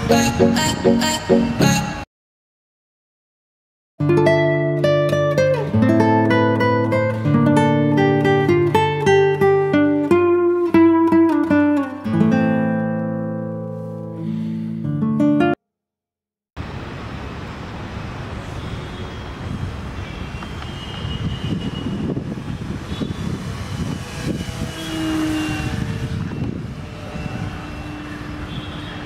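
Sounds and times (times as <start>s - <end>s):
model airplane motors whining: 22.6s - 28.7s.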